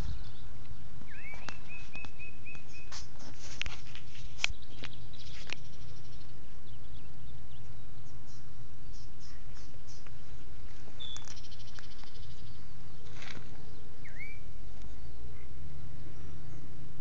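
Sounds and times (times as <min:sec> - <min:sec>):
bird calls: 0:00.0 - 0:16.8
wind rumble on microphone: 0:00.0 - 0:17.0.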